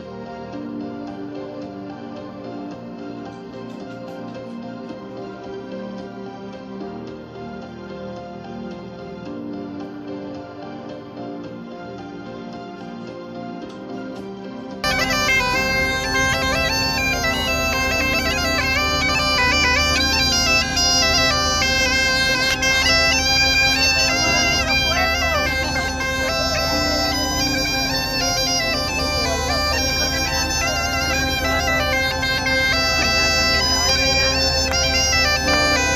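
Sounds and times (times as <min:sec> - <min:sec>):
bagpipe drone: 0:14.8 - 0:35.9
bagpipe melody: 0:14.8 - 0:35.9.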